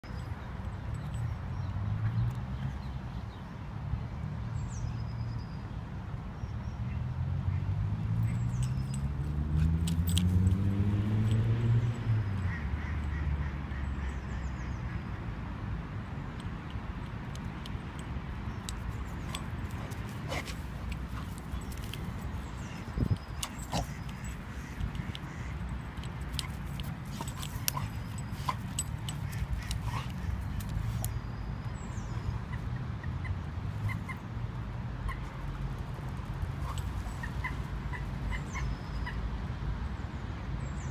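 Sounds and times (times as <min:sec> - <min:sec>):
light clicks and jingles: 0:00.1 - 0:02.8, 0:08.2 - 0:12.1, 0:16.3 - 0:31.2
rustle: 0:18.6 - 0:31.2.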